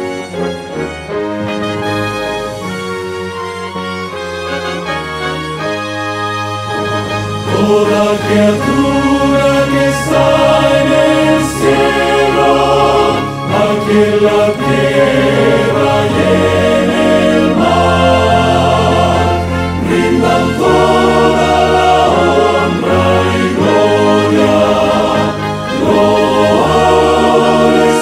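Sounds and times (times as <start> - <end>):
orchestra with brass and flutes: 0.0 - 28.0
men's choir singing: 6.7 - 28.0.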